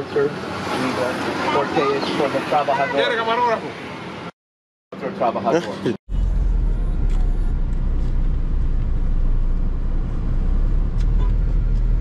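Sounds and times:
vehicle engine low rumble: 0:06.1 - 0:12.0.

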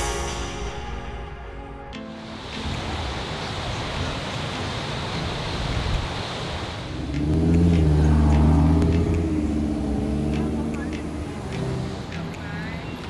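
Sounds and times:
ocean surf on beach: 0:01.9 - 0:13.0
wind on microphone: 0:05.2 - 0:11.3
car engine: 0:06.8 - 0:12.2.

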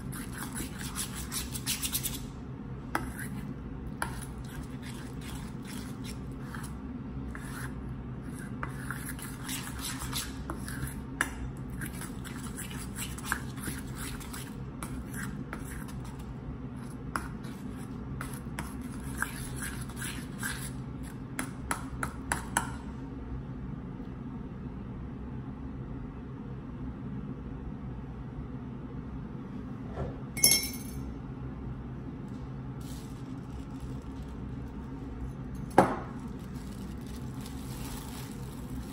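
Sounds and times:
spoon scraping thick mix in bowl: 0:00.0 - 0:22.8, 0:33.4 - 0:38.9
steady low hum: 0:00.0 - 0:38.9
spoon clinking on metal bowl: 0:30.4 - 0:31.0.

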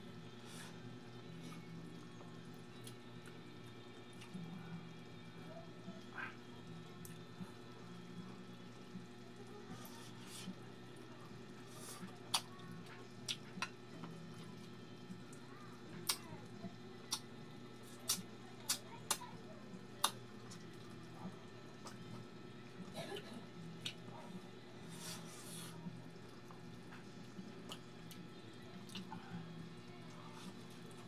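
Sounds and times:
faint steady hum: 0:00.0 - 0:31.0.

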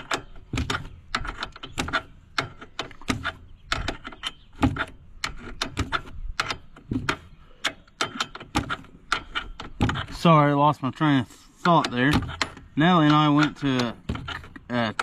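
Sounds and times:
hand tools clicking on metal: 0:11.6 - 0:15.0.

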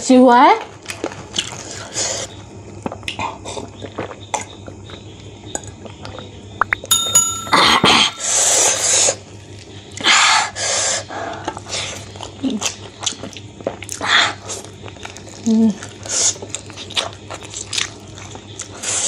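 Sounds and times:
electronic chime with clicks: 0:06.9 - 0:08.4
glass mug clinking: 0:06.9 - 0:08.5.

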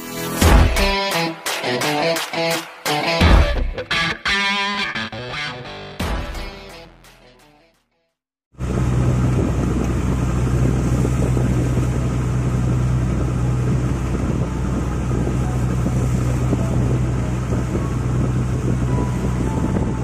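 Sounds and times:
boat engine humming: 0:08.6 - 0:20.0
water rushing along hull: 0:08.6 - 0:20.0.

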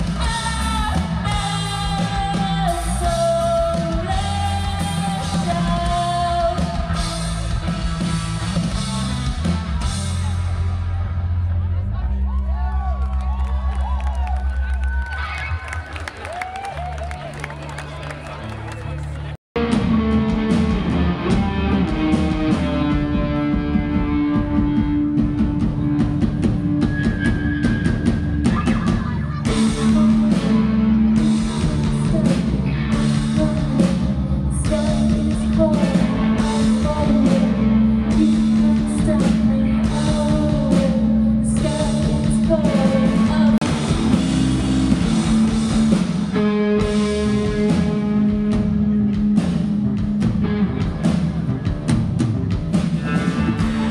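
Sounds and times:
person singing: 0:00.0 - 0:07.4, 0:28.5 - 0:43.6
drum kit: 0:00.0 - 0:11.2, 0:19.6 - 0:53.9
guitar: 0:00.0 - 0:12.4, 0:19.1 - 0:53.9
bass guitar: 0:00.0 - 0:53.9.

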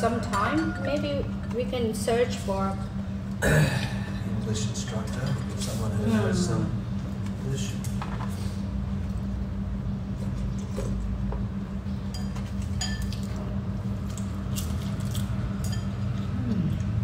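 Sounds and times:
steady low hum: 0:00.0 - 0:17.0
utensils clinking on ceramic bowls: 0:12.1 - 0:13.4, 0:15.6 - 0:16.3.

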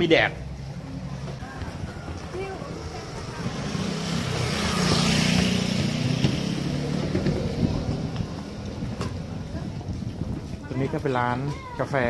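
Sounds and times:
engine droning: 0:00.5 - 0:09.9.

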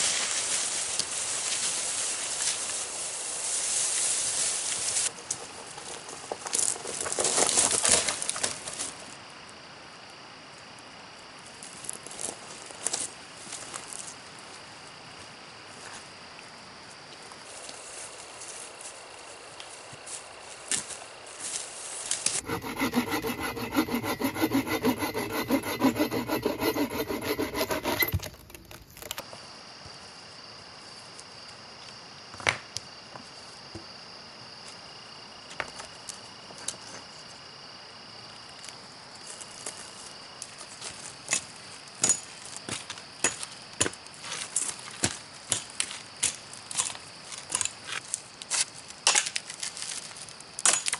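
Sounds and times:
high hum of insects: 0:00.0 - 0:49.1
hand saw cutting log: 0:22.3 - 0:29.2.

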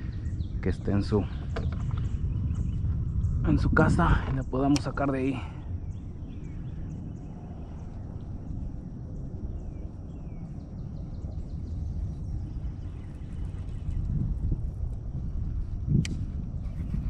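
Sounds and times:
faint bird chirps: 0:04.3 - 0:14.4.

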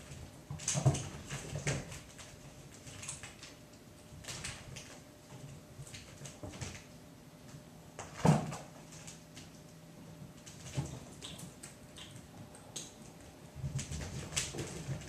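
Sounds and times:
kittens scuffling: 0:00.0 - 0:15.0.

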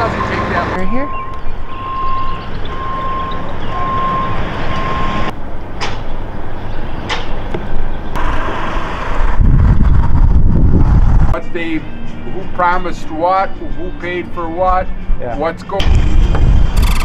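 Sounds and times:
electronic warning beep: 0:00.0 - 0:05.3
travel lift machinery running: 0:16.7 - 0:17.0.

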